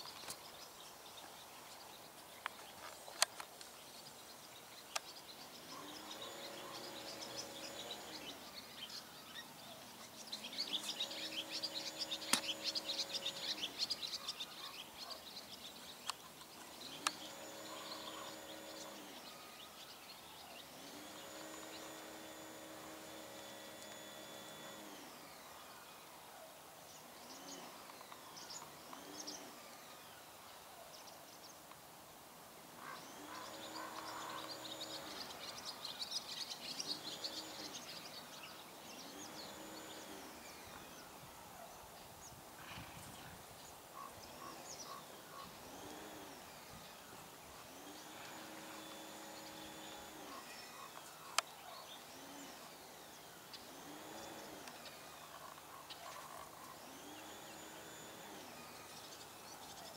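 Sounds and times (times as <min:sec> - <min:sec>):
birds chirping: 0:00.0 - 0:31.8, 0:32.6 - 0:59.9
sharp click: 0:12.3 - 0:12.8.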